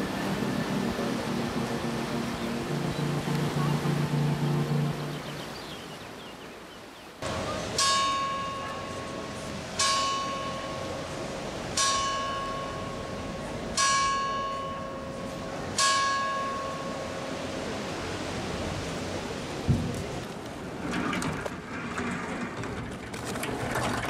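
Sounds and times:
church bell ringing: 7.4s - 17.5s.

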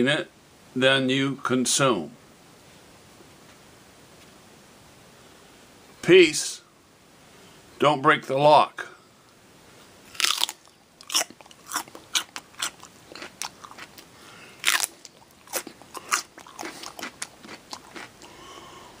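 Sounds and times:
crisp crunching of celery chewing: 10.1s - 18.4s.

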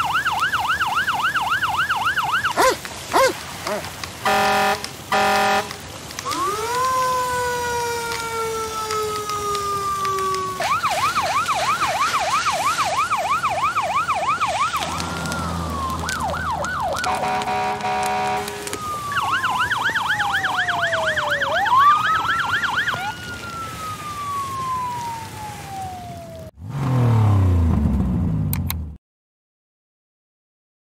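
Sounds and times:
fire truck siren wailing and yelping: 0.0s - 26.6s
horn blasts: 4.2s - 5.8s, 17.0s - 18.8s.

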